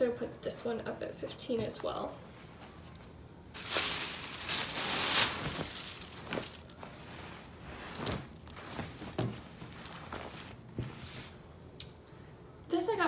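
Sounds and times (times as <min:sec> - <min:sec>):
plastic bag rustling: 0:03.5 - 0:11.4.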